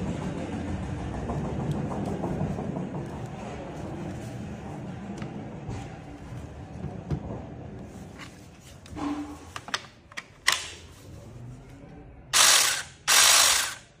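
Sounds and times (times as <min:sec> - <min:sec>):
pruning saw motor whirring: 0:12.4 - 0:13.9.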